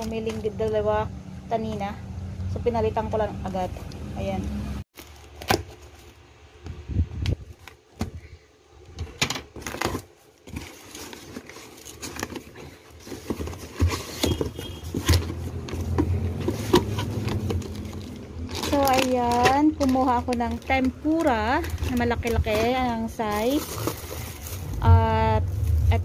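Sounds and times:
plastic snack bags rustling: 5.0 - 6.3, 9.5 - 26.0
scissors snipping plastic strapping: 16.4 - 22.8.

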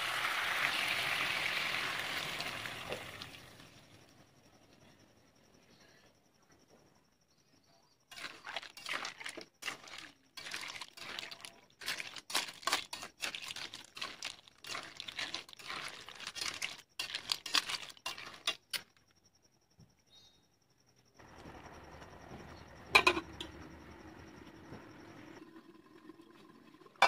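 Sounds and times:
snail shells scraping in a wok: 8.1 - 19.0.

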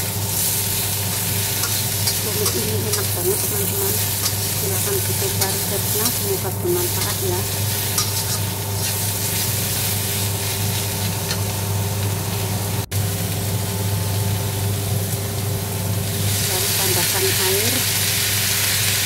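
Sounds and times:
steady low hum: 0.0 - 18.3
vegetables sizzling in a wok: 0.0 - 19.0
metal spatula scraping a wok: 0.4 - 11.4.

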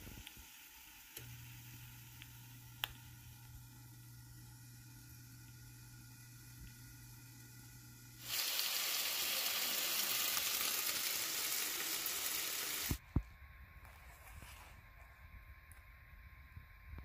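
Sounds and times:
tortilla sizzling in a pan: 8.2 - 13.0.

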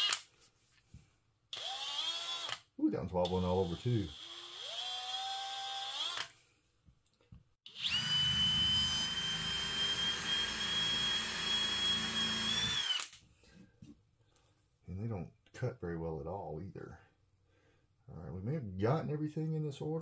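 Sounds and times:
cordless drill whining: 0.0 - 0.2, 1.5 - 2.7, 3.3 - 6.4, 7.7 - 13.2.

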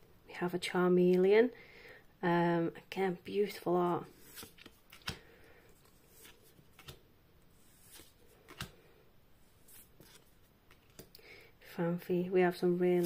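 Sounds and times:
trading cards sliding: 4.0 - 8.8, 9.4 - 11.2.

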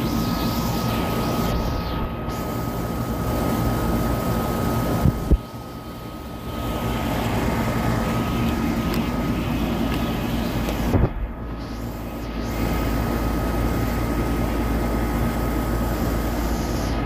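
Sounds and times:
air conditioner units droning: 0.0 - 17.0.

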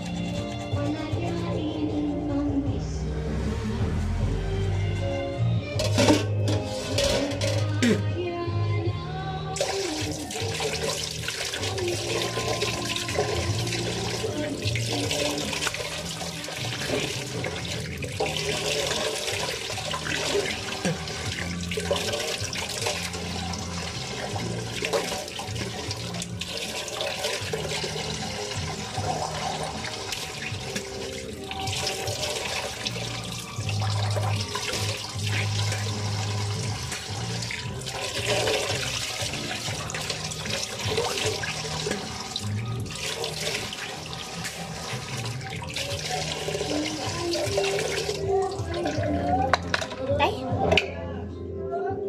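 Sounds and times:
person gargling: 7.8 - 8.2, 20.6 - 21.3
water running into a sink: 9.6 - 50.0.

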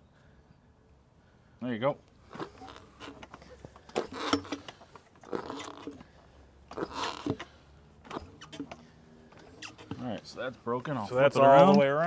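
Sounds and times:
tire rubber scraping and creaking: 2.2 - 11.3.

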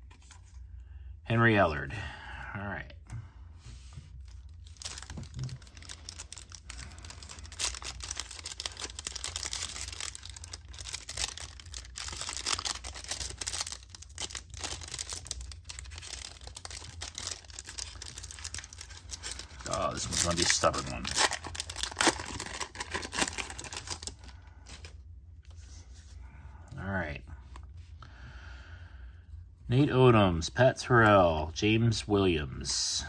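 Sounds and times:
plastic wrapper crinkling and tearing: 4.2 - 25.0.

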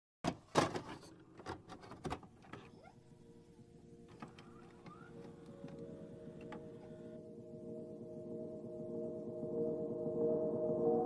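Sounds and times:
drone of held tones: 3.1 - 11.0.

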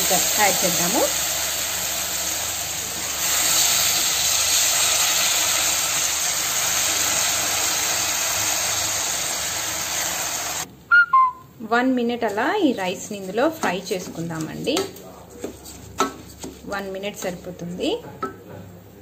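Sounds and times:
oil and vegetables sizzling: 0.0 - 10.7.

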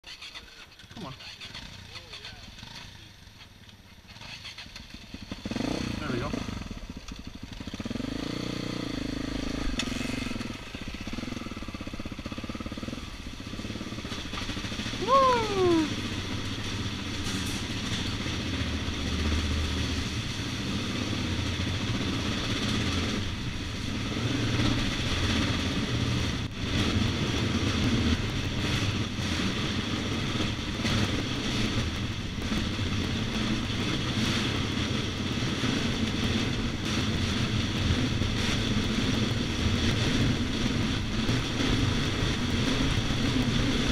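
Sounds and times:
dirt bike engine running: 0.0 - 43.9
rattle and rumble: 9.3 - 43.9
loud sound falling in pitch: 15.0 - 15.9.

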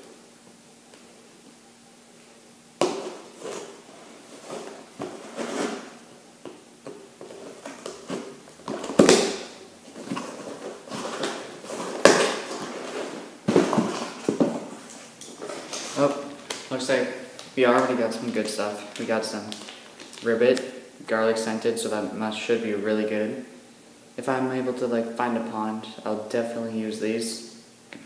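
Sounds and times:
cardboard scraping and tearing: 3.2 - 6.0.

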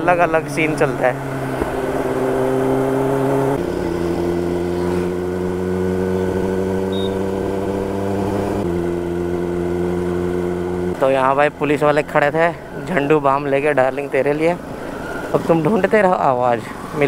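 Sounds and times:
motorcycle engine running: 0.0 - 12.4.

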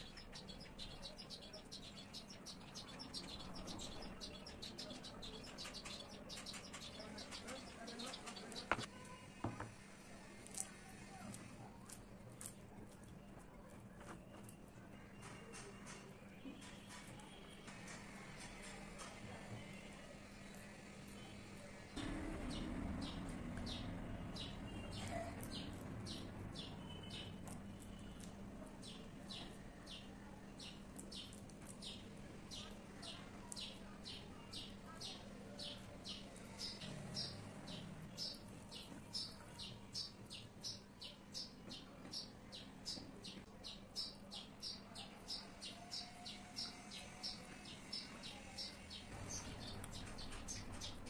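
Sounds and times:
bird chirping: 0.0 - 8.9, 22.0 - 51.0.

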